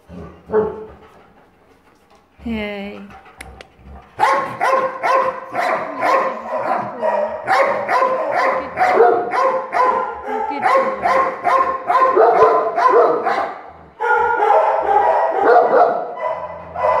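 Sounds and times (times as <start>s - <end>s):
dogs barking loudly: 0.0s - 1.8s, 3.3s - 17.0s.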